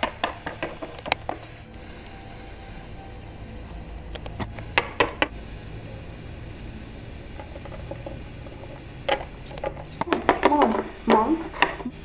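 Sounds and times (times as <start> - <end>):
plastic figures clicking on tabletop: 0.0 - 1.4
low room hum: 0.0 - 12.0.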